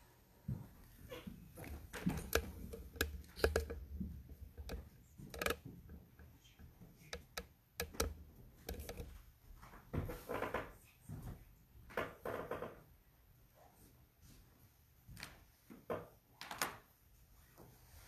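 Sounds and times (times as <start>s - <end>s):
small handling clicks and knocks: 1.6s - 9.3s.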